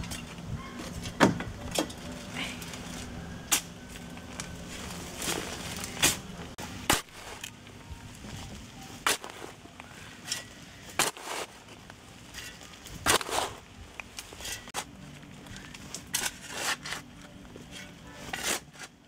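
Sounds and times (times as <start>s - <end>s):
hoe chopping into stony earth: 9.0s - 9.5s, 10.9s - 11.6s, 13.0s - 13.6s.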